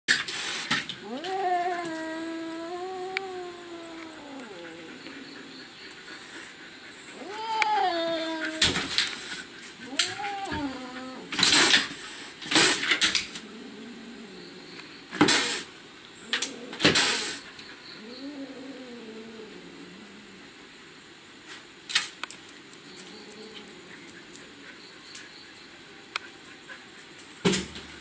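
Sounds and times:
cat hissing and spitting: 0.1 - 13.5, 15.2 - 17.6
cat yowling: 1.0 - 5.5, 7.1 - 9.0, 9.8 - 11.4.

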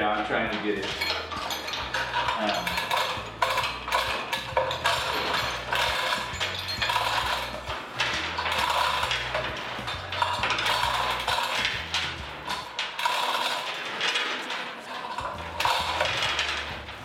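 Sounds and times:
hoist chain rattling and clinking: 0.0 - 17.0.

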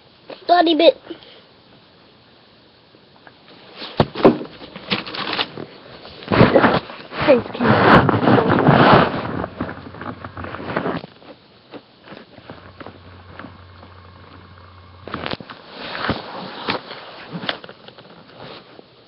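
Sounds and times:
rustling against microphone: 3.7 - 11.4, 12.0 - 18.8.

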